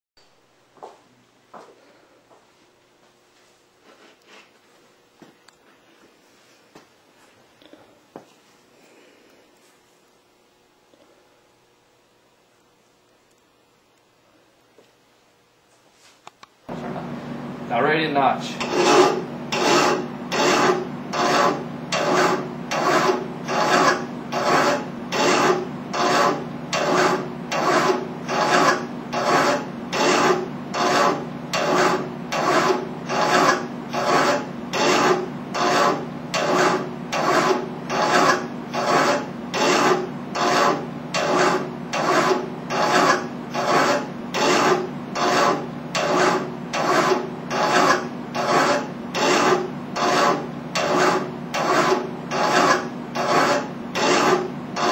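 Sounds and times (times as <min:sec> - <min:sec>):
tube notcher rasping cuts: 0:18.6 - 0:54.9.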